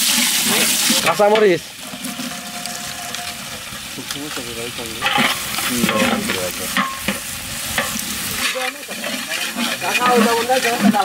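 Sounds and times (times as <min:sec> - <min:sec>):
onions frying in hot oil: 0:00.0 - 0:11.0
spatula stirring and scraping: 0:00.0 - 0:11.0.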